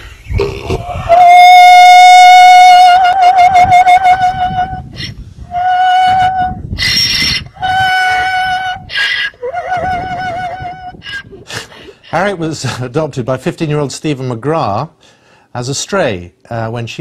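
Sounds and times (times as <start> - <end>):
donkey braying: 0.3 - 12.4
harsh breaths: 15.0 - 15.5.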